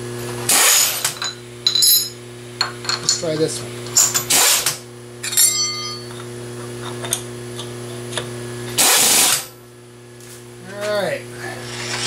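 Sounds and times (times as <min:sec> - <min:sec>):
power tool burst: 0:00.5 - 0:01.0, 0:04.3 - 0:04.8, 0:08.8 - 0:09.5
steady low hum: 0:01.2 - 0:08.8, 0:09.4 - 0:12.0.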